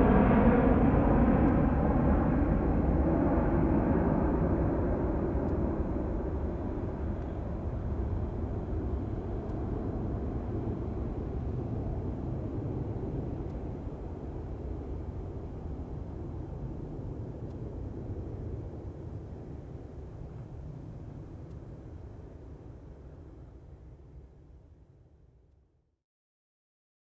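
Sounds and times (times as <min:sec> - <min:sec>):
jet engines roaring: 0:00.0 - 0:21.3.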